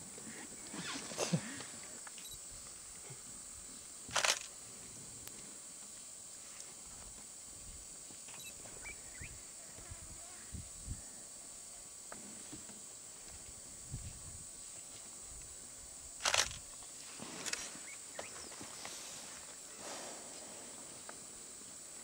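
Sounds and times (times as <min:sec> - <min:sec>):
faint steady hiss: 0:00.0 - 0:22.0
rhino snort: 0:19.7 - 0:20.8.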